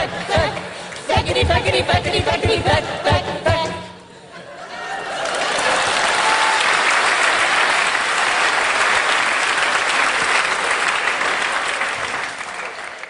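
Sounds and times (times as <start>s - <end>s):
audience applauding: 4.9s - 13.0s.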